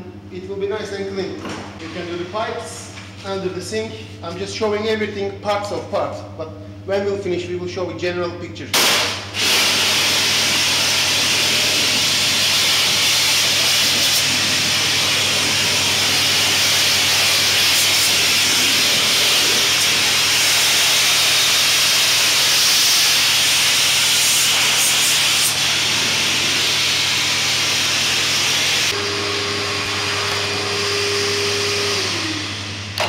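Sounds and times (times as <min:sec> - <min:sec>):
pressure washer jet hissing: 0:08.8 - 0:32.7.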